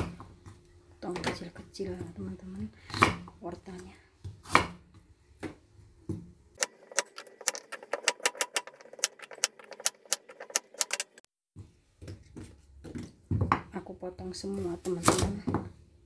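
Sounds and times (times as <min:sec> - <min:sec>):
knife chopping on wooden board: 0:02.9 - 0:03.3, 0:04.2 - 0:06.2.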